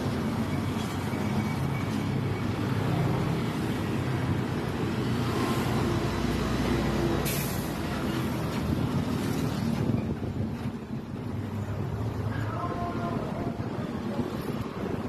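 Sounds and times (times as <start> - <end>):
road traffic: 0.0 - 15.0
truck engine rumbling: 0.0 - 15.0.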